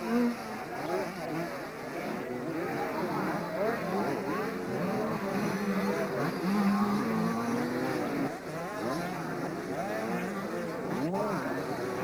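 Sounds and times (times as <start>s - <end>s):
dirt bike engines revving: 0.0s - 12.0s.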